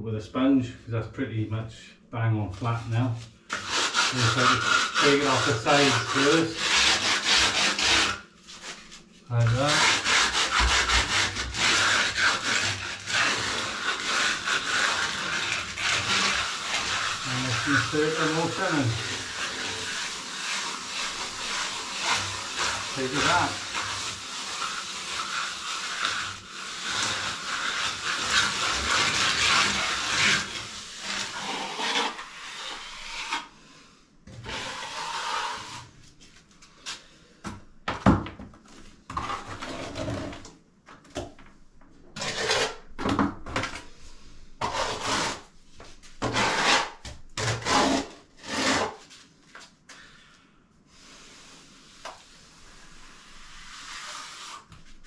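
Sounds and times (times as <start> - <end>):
sponge float rubbing cement: 2.6 - 33.5, 34.3 - 35.9, 44.6 - 49.2, 51.2 - 55.0.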